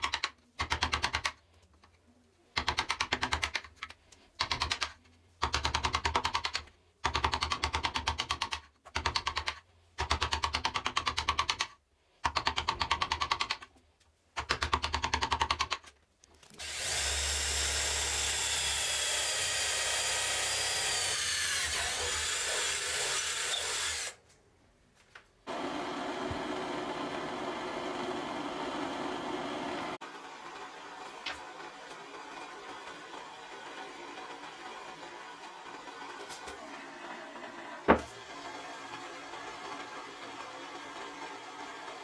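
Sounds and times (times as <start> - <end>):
electric drill boring: 16.6 - 24.2, 25.5 - 42.0.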